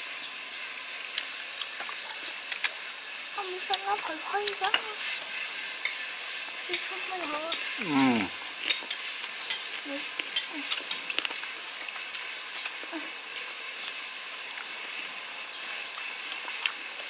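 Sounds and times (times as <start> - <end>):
crackly hiss: 0.0 - 17.0
chewing clicks: 1.1 - 2.9, 10.2 - 12.8
utensils on dishes: 3.7 - 7.9, 8.5 - 12.0.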